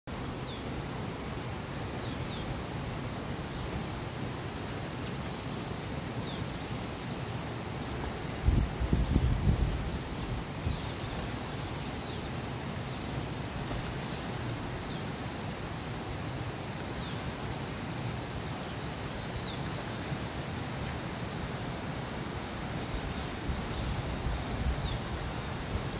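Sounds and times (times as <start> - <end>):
river water rushing: 0.1 - 25.9
wind buffeting microphone: 8.0 - 11.5, 22.8 - 25.9.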